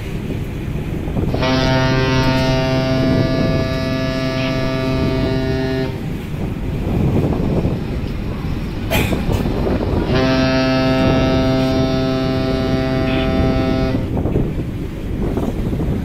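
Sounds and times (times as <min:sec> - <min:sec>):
low rumble: 0:00.0 - 0:15.6
ship horn blast: 0:00.4 - 0:15.8.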